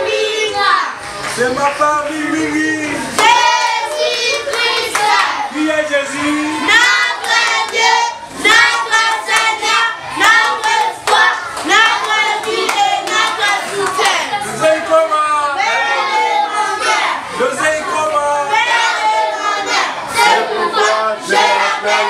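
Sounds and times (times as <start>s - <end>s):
children singing together: 0.0s - 1.0s, 3.1s - 5.5s, 6.6s - 14.5s, 15.6s - 22.0s
children clapping hands: 3.1s - 5.3s, 6.8s - 14.4s.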